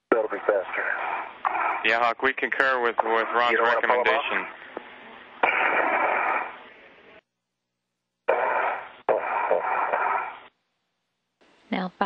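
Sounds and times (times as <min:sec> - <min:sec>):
radio static hiss: 0:00.0 - 0:07.2, 0:08.3 - 0:10.5.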